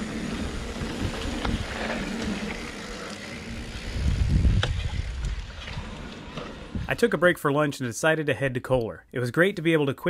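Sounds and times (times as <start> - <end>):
wind buffeting camera: 0.0 - 7.1
tyres rumbling on dirt: 0.0 - 7.2.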